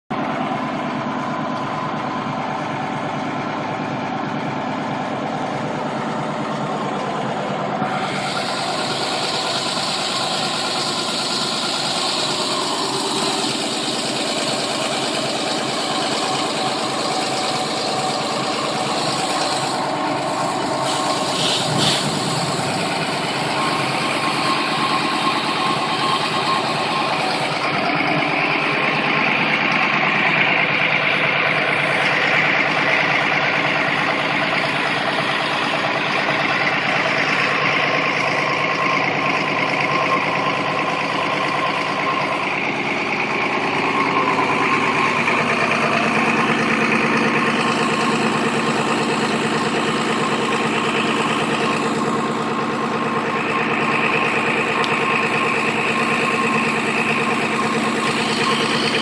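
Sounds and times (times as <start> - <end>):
pumping engine running: 0.1 - 59.0
water jetting hiss: 20.8 - 22.9.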